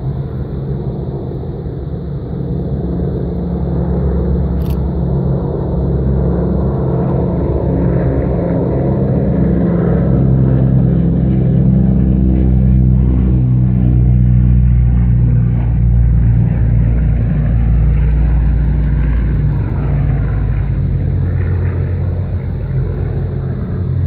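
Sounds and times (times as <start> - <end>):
propeller aircraft engines droning: 0.0 - 24.0.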